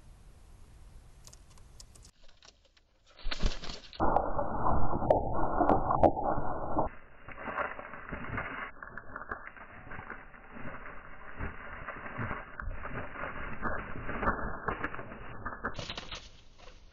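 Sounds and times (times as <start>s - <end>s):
steady outdoor hiss: 0.0s - 2.1s
pigeons pecking seed: 7.3s - 16.9s.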